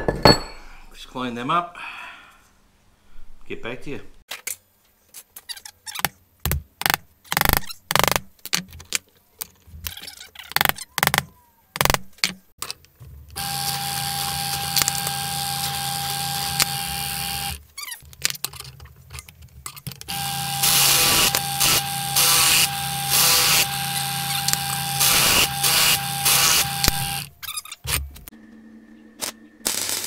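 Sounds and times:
drill bit grinding into steel: 13.4 - 17.6, 20.1 - 28.0
drill press humming: 13.4 - 17.6, 20.1 - 27.4.

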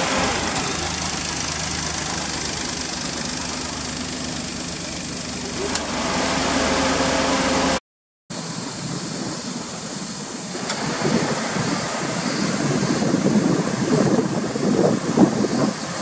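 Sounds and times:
car engine idling: 0.0 - 7.8
wind buffeting microphone: 8.7 - 16.0.

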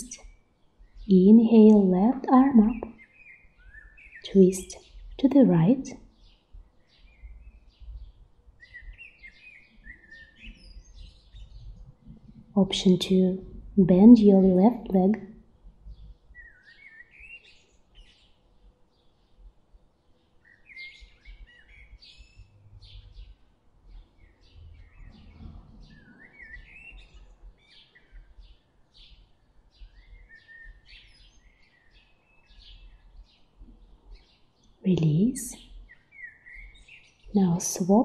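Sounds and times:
small birds chirping: 0.0 - 38.0
faint low rumble: 23.9 - 26.3.

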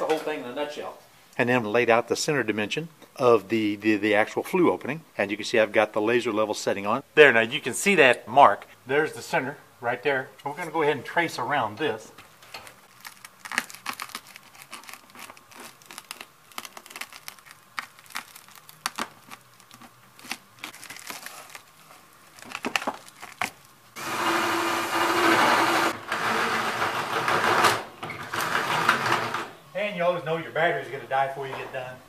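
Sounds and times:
foil insulation crinkling and tearing: 12.5 - 24.0
power drill running: 24.0 - 29.5.

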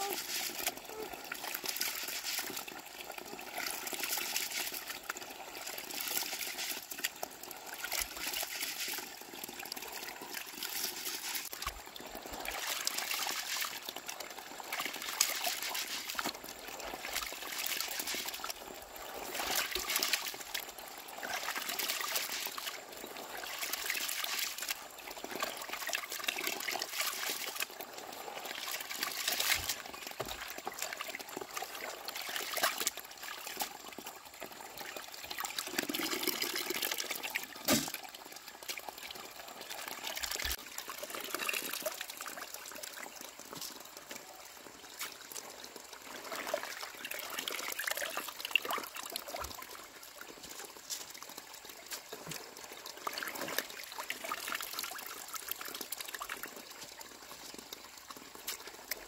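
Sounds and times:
rice washed in water swishing: 0.0 - 2.8, 12.3 - 18.6.

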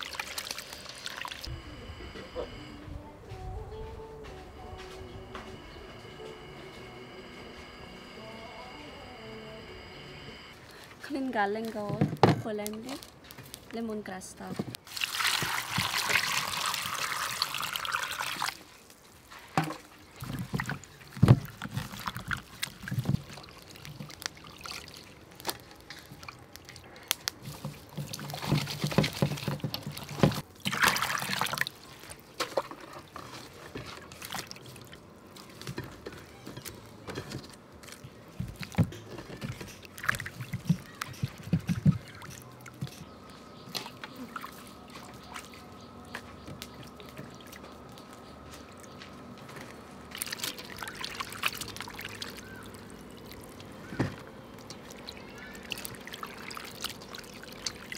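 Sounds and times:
pouring water rush: 0.0 - 1.5, 14.9 - 18.9, 50.0 - 57.9
water splashing and trickling: 0.0 - 1.5, 14.8 - 57.9.

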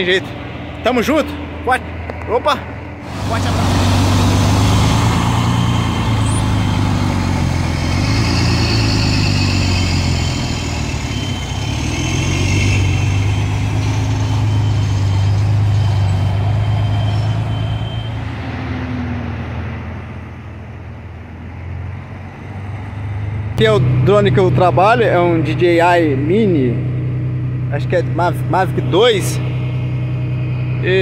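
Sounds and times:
diesel engine idling: 0.0 - 18.2, 19.5 - 31.0.

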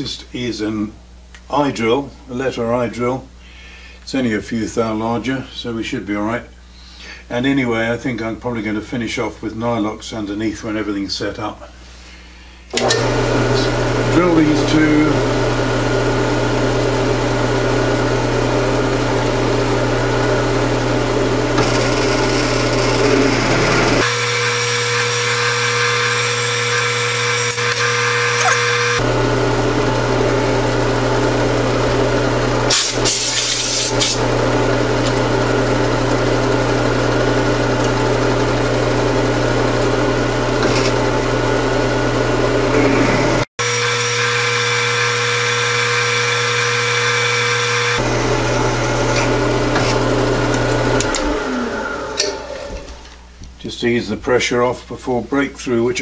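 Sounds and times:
drill press motor hum: 12.7 - 14.5, 18.3 - 53.2.

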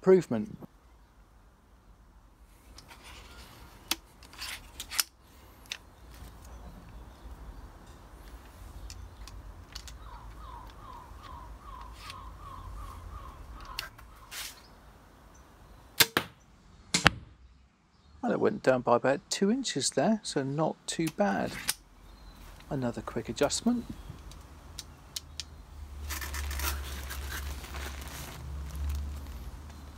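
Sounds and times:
crossbow mechanical clicks: 8.3 - 12.3, 13.6 - 14.0.

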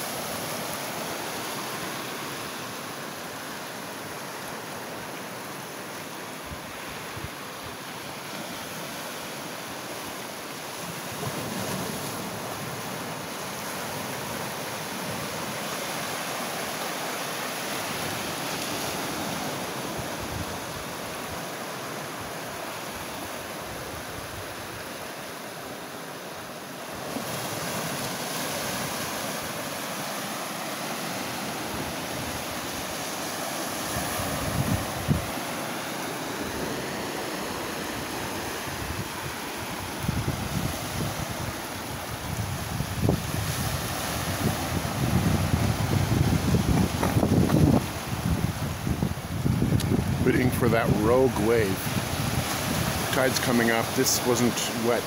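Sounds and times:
ocean surf breaking on rocks: 0.0 - 55.0.

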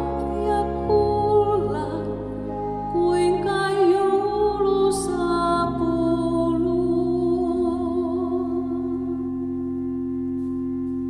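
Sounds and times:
piano: 0.0 - 11.0
woman singing with vibrato: 0.3 - 9.3.

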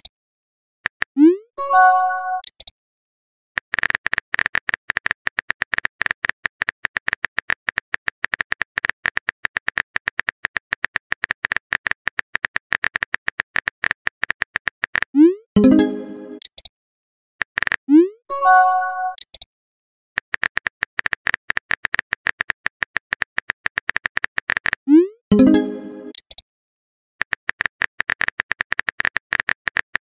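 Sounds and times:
phone keyboard typing clicks: 20.2 - 24.8, 27.2 - 30.0.

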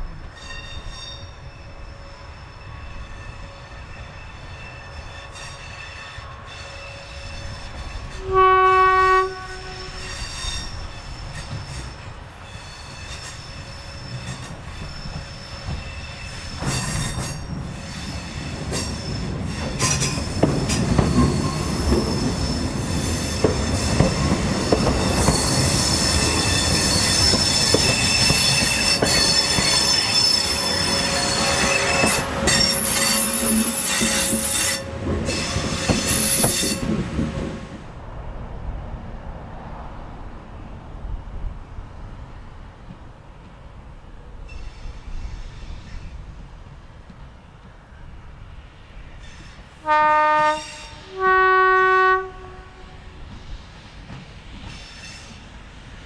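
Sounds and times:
train running past: 0.0 - 56.0
train horn blast: 8.1 - 10.3, 28.4 - 37.6, 49.8 - 53.2
wheels squealing on curved track: 9.5 - 37.0.

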